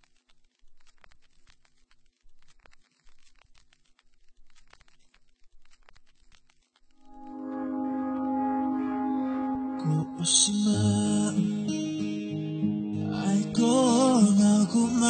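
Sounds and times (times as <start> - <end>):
faint crackling and clicking: 0.0 - 7.2
music with held chord: 7.1 - 13.4.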